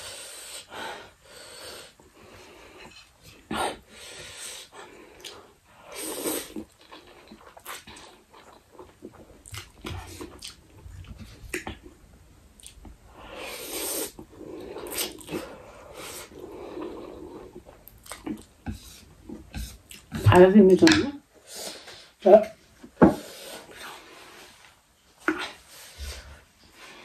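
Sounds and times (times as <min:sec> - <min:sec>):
noisy sucks and breaths: 0:00.0 - 0:08.4, 0:13.0 - 0:17.9
person slurping noodles: 0:04.4 - 0:08.9, 0:13.2 - 0:17.6.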